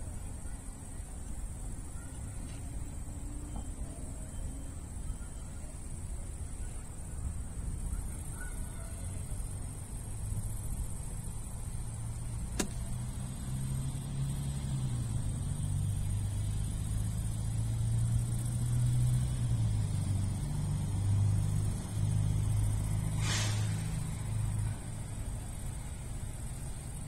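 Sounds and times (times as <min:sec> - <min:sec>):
road traffic engine drone: 0:00.0 - 0:27.0
sharp click: 0:12.5 - 0:12.9
short hissing swish: 0:23.0 - 0:24.3.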